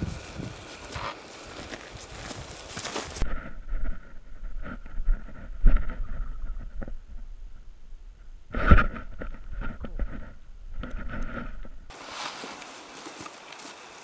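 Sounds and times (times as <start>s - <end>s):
footsteps on dry grass: 0.0s - 3.3s, 11.9s - 14.0s
wind on microphone: 0.0s - 11.9s.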